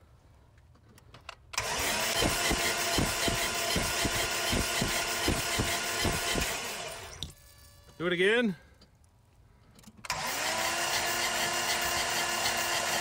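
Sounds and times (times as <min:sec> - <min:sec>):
engine cranking on starter: 0:01.5 - 0:07.2, 0:10.0 - 0:13.0.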